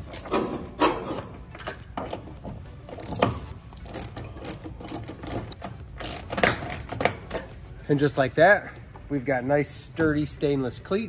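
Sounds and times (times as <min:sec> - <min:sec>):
hand ratchet clicking: 0:02.9 - 0:07.5.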